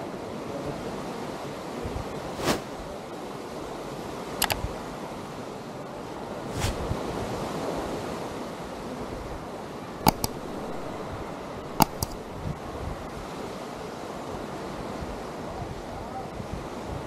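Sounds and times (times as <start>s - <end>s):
sharp clicks: 10.0s - 12.5s.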